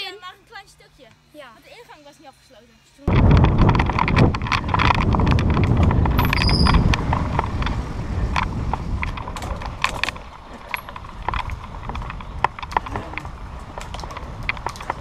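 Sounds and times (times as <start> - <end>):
bike clicks and rattles: 3.1 - 15.0
tyres on dirt: 3.1 - 15.0
wind rumble on microphone: 3.1 - 15.0.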